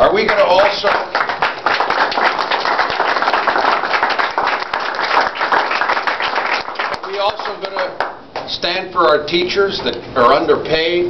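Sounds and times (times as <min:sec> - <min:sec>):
group of people applauding: 0:00.2 - 0:08.2.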